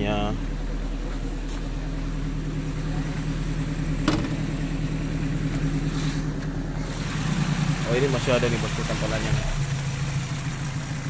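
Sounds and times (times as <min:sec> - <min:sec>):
sharp knock: 0:04.0 - 0:04.4.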